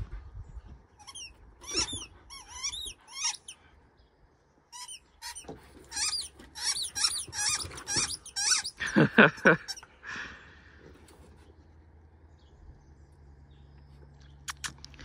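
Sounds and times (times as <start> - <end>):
dog whining yelps: 1.0 - 3.6, 4.8 - 8.8.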